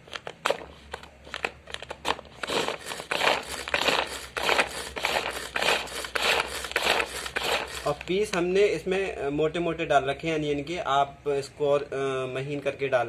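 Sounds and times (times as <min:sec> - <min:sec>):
pull-cord chopper rasping whir: 0:02.4 - 0:08.4.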